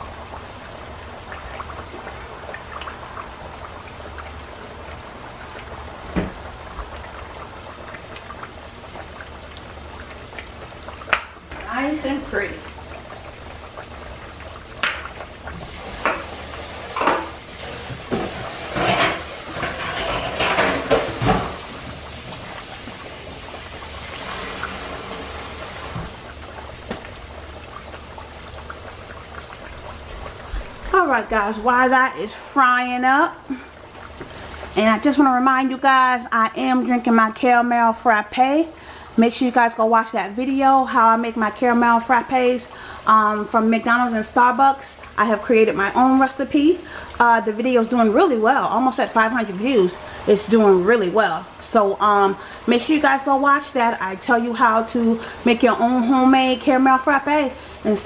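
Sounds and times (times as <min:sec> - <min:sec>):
chicken sizzling in hot oil: 0:00.0 - 0:58.0
oil pop: 0:11.1 - 0:11.7, 0:14.8 - 0:15.2.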